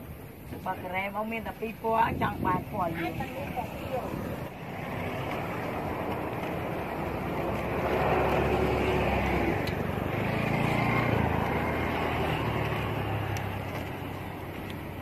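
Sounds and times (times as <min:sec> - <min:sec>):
vehicle engine passing by: 0:03.1 - 0:15.0.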